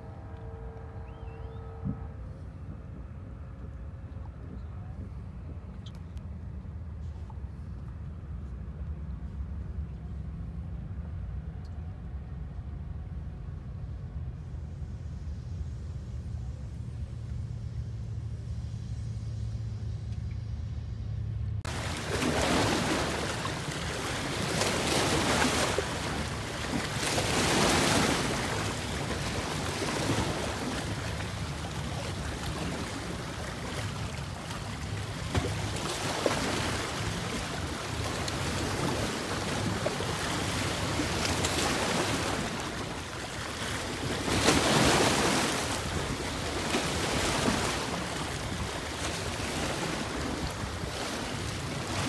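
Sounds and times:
wind on microphone: 0.0s - 7.8s
low steady rumble: 0.0s - 52.0s
waves splashing against rocks: 21.7s - 52.0s.

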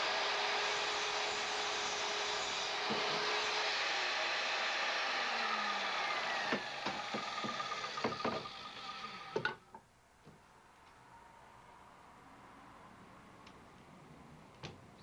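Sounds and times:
power saw cutting wood: 0.0s - 9.4s.

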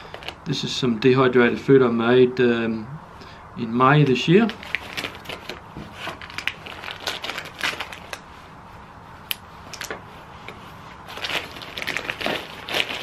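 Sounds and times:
plastic bag crinkling: 0.0s - 0.5s, 4.4s - 8.3s, 11.0s - 13.0s.

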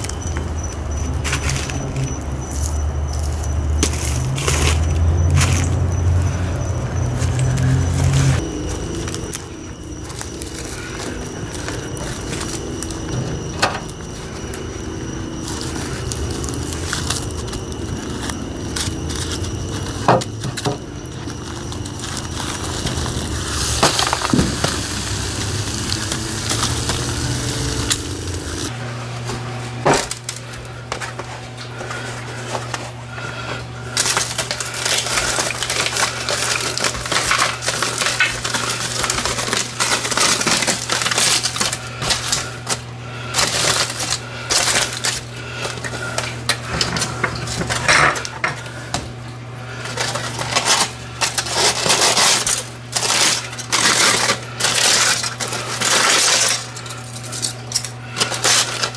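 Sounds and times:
steady low hum: 0.0s - 58.9s
aluminum foil crinkling: 1.0s - 28.7s, 30.0s - 49.0s, 49.6s - 58.9s
scissors cutting foil: 15.4s - 28.7s, 33.9s - 48.7s, 49.7s - 58.9s.

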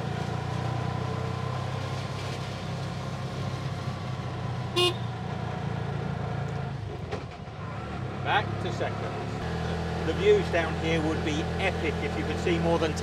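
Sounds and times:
auto-rickshaw engine running: 0.0s - 13.0s
short horn toot: 4.8s - 5.1s.

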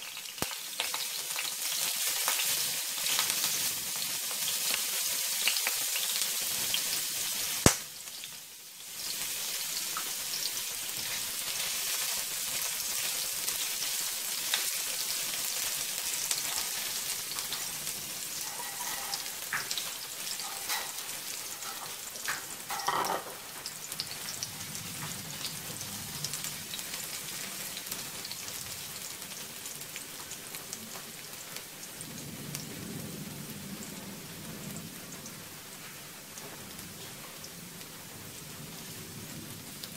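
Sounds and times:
food sizzling in hot oil: 0.0s - 39.9s
spatula stirring in pan: 16.3s - 23.3s.

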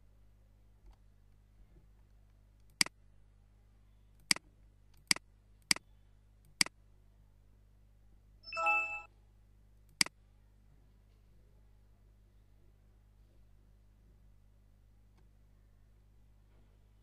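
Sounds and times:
notification chime: 8.5s - 9.1s.

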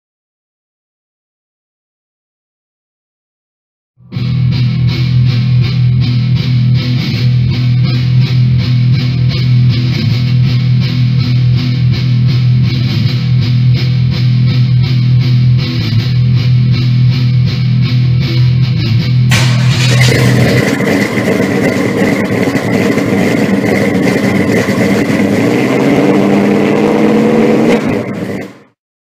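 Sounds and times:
rock music with distorted guitar: 4.0s - 28.6s.

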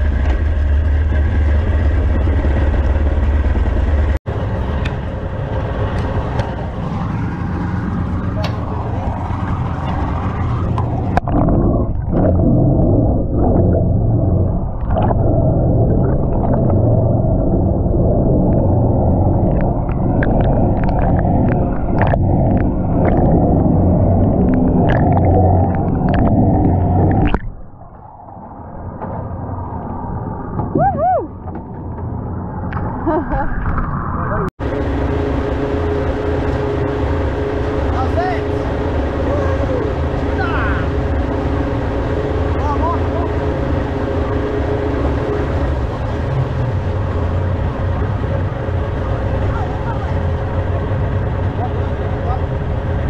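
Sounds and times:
water rushing along hull: 0.0s - 31.5s, 32.1s - 53.0s
muffled underwater rumble: 0.0s - 53.0s
sharp underwater clicks: 19.4s - 23.6s, 24.2s - 27.7s.

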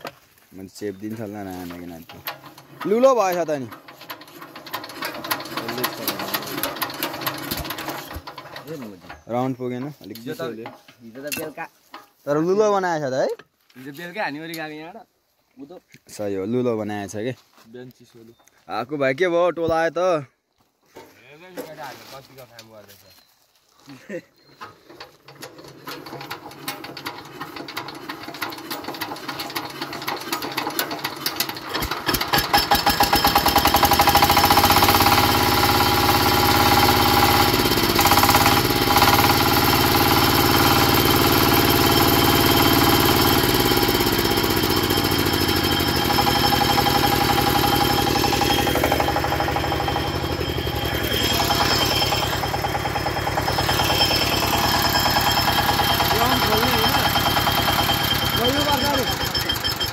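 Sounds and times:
drill rig engine starting and running: 0.9s - 11.5s, 24.6s - 59.9s.

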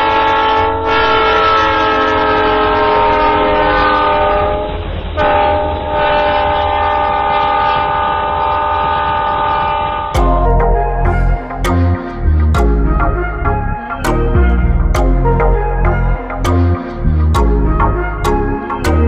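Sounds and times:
train horn blasts: 0.0s - 11.3s
train rumble: 0.0s - 19.0s.

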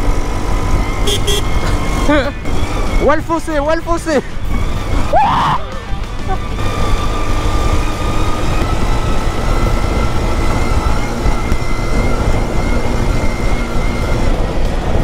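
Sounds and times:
small petrol engine at high revs: 0.0s - 15.0s
wind rumble: 0.0s - 15.0s
bumps on dirt track: 6.0s - 15.0s.

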